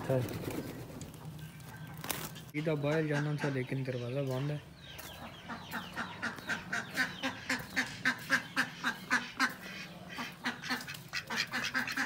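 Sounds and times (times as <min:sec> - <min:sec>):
duck quacking: 0:02.6 - 0:03.7, 0:05.2 - 0:12.0.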